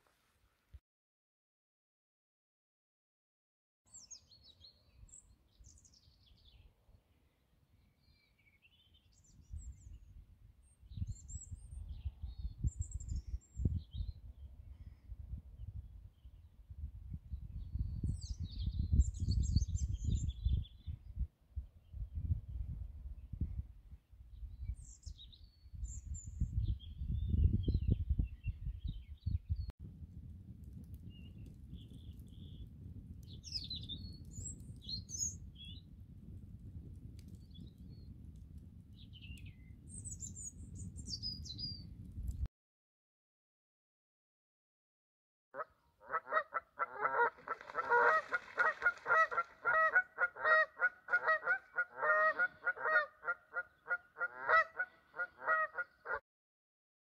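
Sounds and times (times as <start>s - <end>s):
small birds singing: 3.9s - 10.1s, 31.1s - 35.9s, 38.9s - 42.0s
campfire crackles: 29.8s - 41.1s, 41.8s - 42.5s, 47.6s - 49.2s
geese honking: 46.3s - 53.2s.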